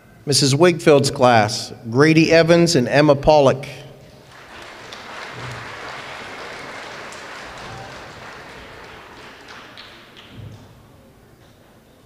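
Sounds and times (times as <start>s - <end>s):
audience applauding: 4.2s - 10.8s.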